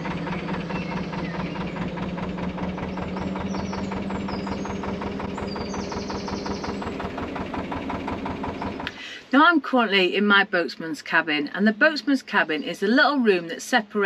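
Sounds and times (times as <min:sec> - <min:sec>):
diesel engine knocking: 0:00.0 - 0:10.5.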